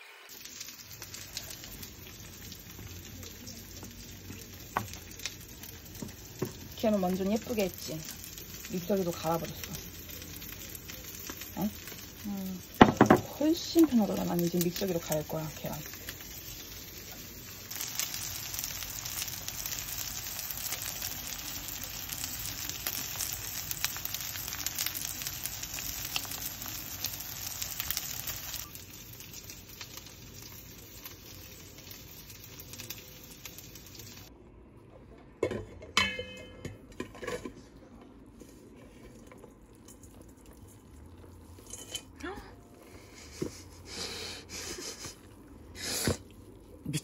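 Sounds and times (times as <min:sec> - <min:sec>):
food sizzling in a frying pan: 0:00.0 - 0:34.3.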